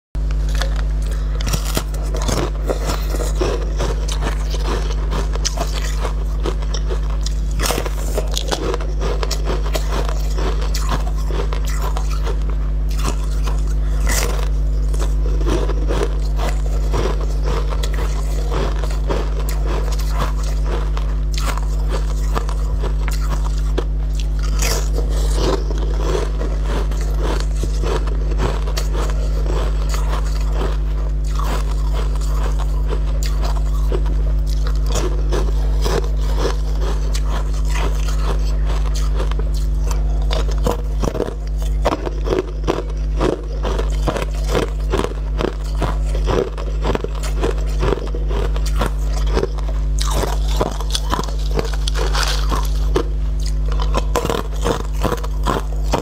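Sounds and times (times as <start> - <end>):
steady low hum: 0.1 - 56.0
chewing crunchy food: 0.2 - 56.0.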